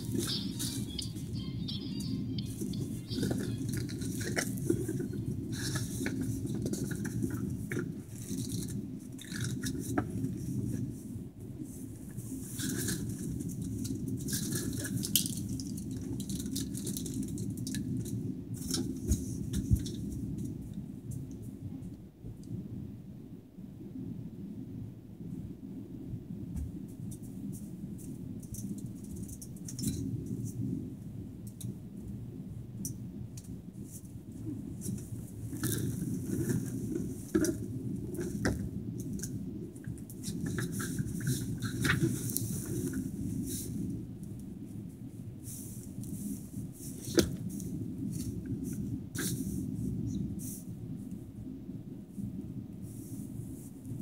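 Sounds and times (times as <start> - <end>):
rustling near microphone: 0.0 - 21.9, 33.5 - 51.3, 52.0 - 54.0.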